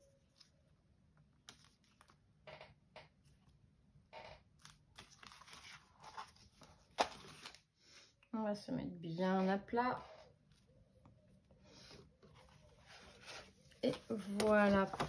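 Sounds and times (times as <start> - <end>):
paper rustling and tapping: 13.8 - 15.0.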